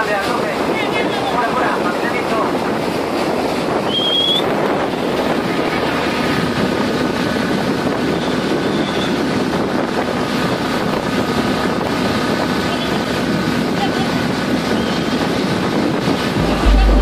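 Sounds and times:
rushing sea water: 0.0s - 16.6s
wind buffeting microphone: 0.1s - 17.0s
high rising whistle: 3.9s - 4.5s.

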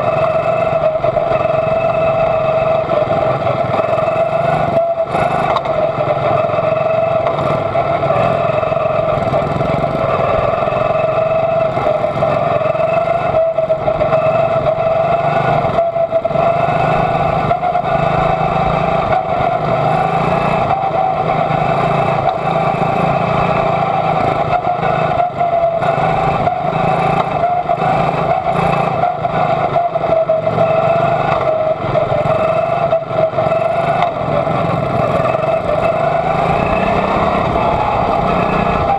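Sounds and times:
other racing car engines: 0.0s - 38.9s
small engine at high revs: 0.0s - 38.9s.

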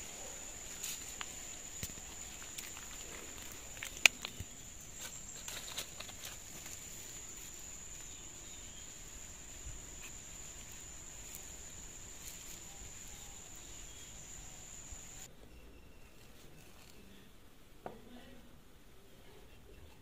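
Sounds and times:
high-pitched insect drone: 7.2s - 15.3s.

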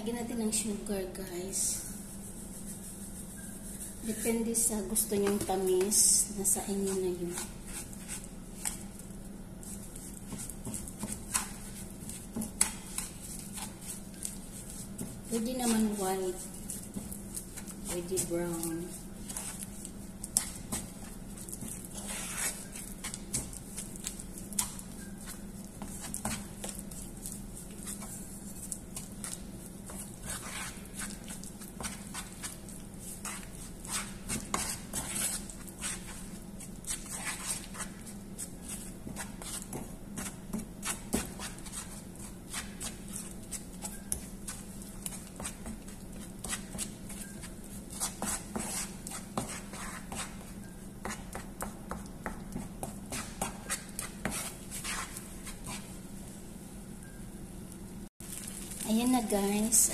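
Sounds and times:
steady low hum: 0.0s - 59.9s
wooden spatula scraping a pan: 29.1s - 36.3s.

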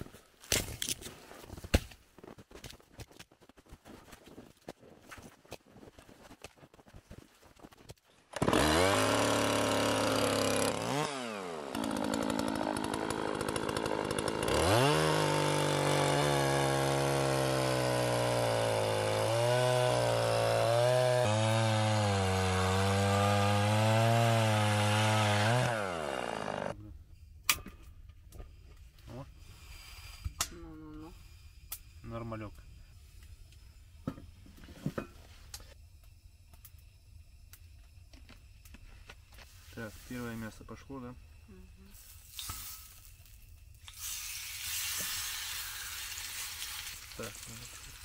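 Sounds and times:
chainsaw cutting log: 8.3s - 26.8s, 43.4s - 48.0s.

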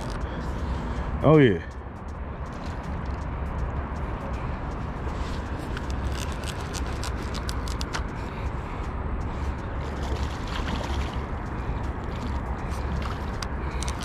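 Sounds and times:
wind rumble on microphone: 0.0s - 0.8s
fishing reel clicking: 5.7s - 8.1s, 13.0s - 14.0s.

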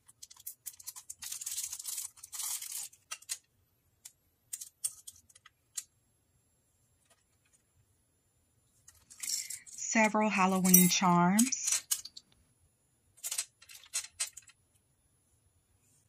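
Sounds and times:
plastic baggie crinkling: 0.2s - 3.4s.

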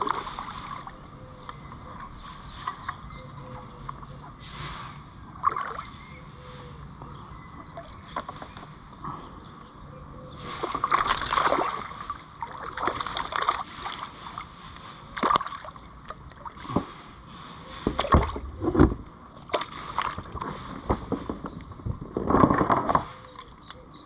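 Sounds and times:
fish splashing at water surface: 0.0s - 1.0s, 10.4s - 17.0s, 19.3s - 20.6s.

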